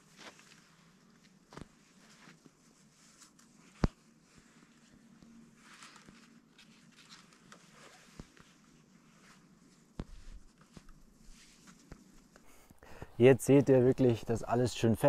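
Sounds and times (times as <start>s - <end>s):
cord rustling and scraping: 0.0s - 12.5s.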